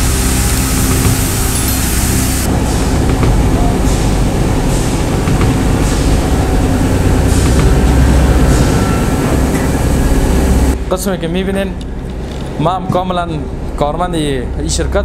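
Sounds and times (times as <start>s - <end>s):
steam hissing: 0.0s - 10.8s
industrial machinery rumbling: 0.0s - 15.0s.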